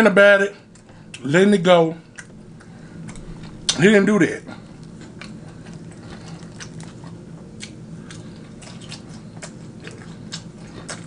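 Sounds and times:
low hum: 0:00.0 - 0:11.0
person chewing food: 0:02.1 - 0:03.8, 0:04.5 - 0:11.0.

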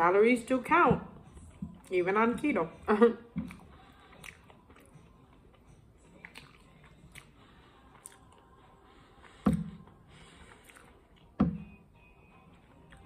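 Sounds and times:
quiet chewing: 0:03.3 - 0:11.4, 0:12.5 - 0:13.0
soft mouth clicks: 0:03.4 - 0:05.0, 0:08.0 - 0:08.4.

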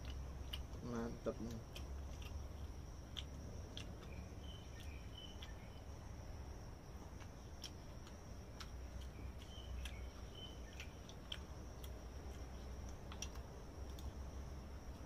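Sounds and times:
insects trilling: 0:00.0 - 0:15.0.

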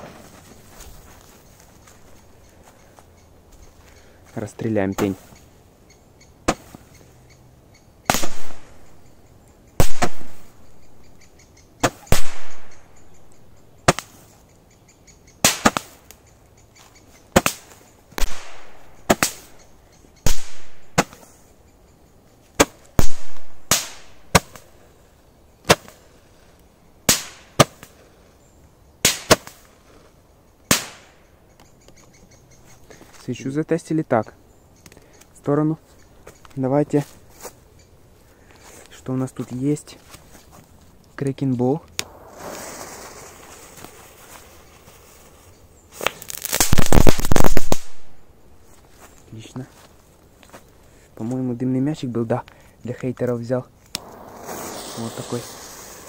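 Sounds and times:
firework hiss: 0:42.0 - 0:48.0, 0:54.0 - 0:56.0.

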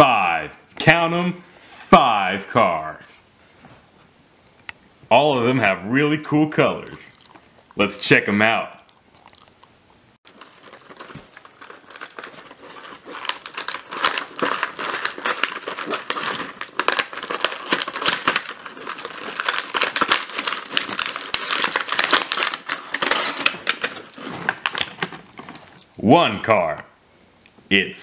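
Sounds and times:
plastic packaging crinkling: 0:10.2 - 0:26.0
paper card tearing: 0:10.3 - 0:25.0.

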